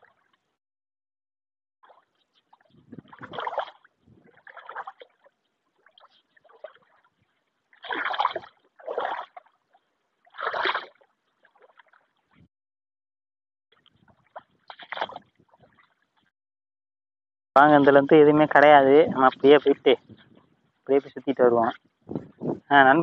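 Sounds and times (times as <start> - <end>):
footsteps wading through water: 1.8 - 12.5, 13.7 - 16.3.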